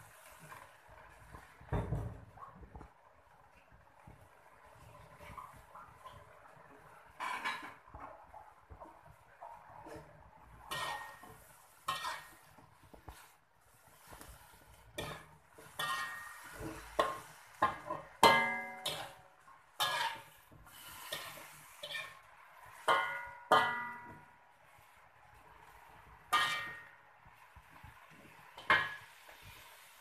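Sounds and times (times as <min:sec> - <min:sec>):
metal turner clanking in wok: 0:10.7 - 0:12.4, 0:15.0 - 0:19.2, 0:19.8 - 0:24.3, 0:26.3 - 0:26.9.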